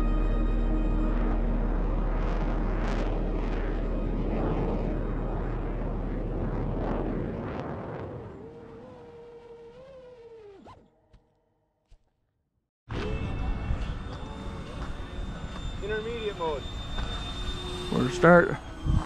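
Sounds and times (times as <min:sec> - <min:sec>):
background music with deep bass booms: 0:00.0 - 0:06.8.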